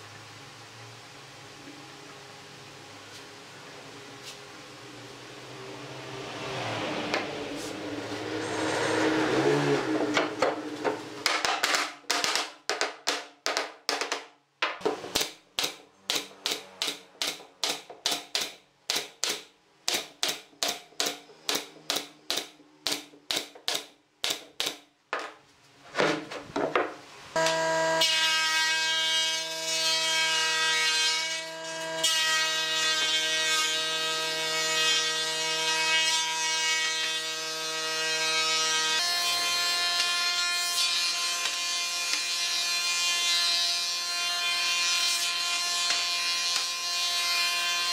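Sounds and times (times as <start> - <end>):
nail gun firing: 11.2 - 24.8.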